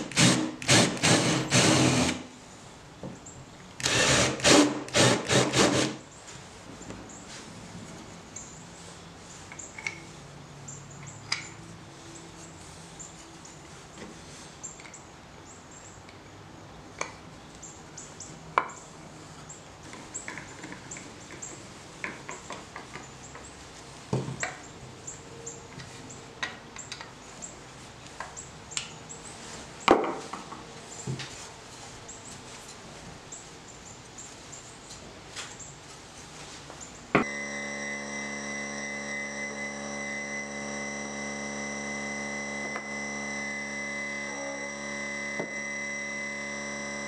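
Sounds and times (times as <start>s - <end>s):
hand tools clicking and tapping on wood: 19.8s - 23.5s.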